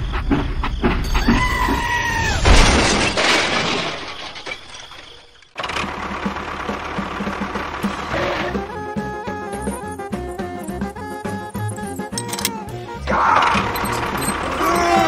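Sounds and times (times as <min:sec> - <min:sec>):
loud crash with shattering: 0:02.3 - 0:05.6
toy train clicks: 0:09.6 - 0:12.7, 0:13.5 - 0:15.0.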